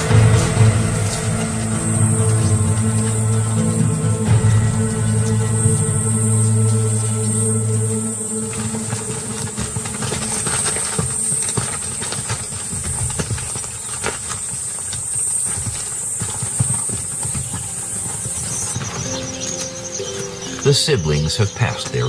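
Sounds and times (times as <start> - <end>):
hoofbeats on dry ground: 0.0 - 22.0.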